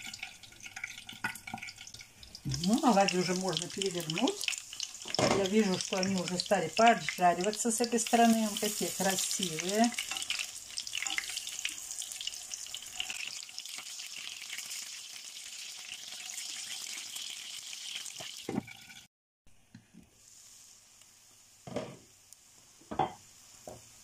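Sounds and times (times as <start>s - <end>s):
pancakes sizzling in oil: 0.0s - 24.0s
spatula turning pancakes: 2.4s - 11.8s.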